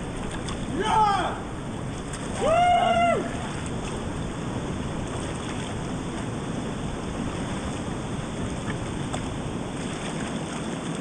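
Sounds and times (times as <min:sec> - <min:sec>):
person shouting: 0:00.7 - 0:01.5.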